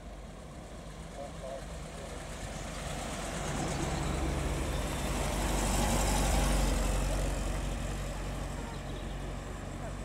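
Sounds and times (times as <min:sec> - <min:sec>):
car engines running: 0:00.0 - 0:10.0
car engine passing by: 0:01.8 - 0:10.0.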